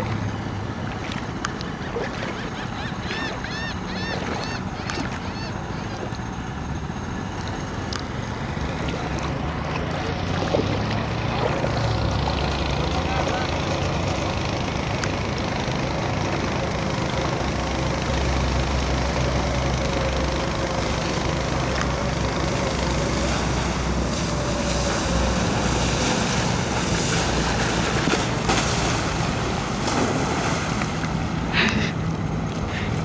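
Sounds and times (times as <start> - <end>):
winch motor running: 0.0 - 33.0
splash into water: 25.7 - 31.2.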